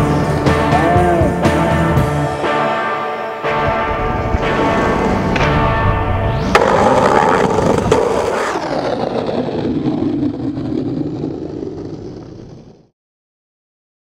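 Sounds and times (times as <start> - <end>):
skateboard wheels rolling on pavement: 3.6 - 12.9
skateboard clacking down: 6.5 - 9.1.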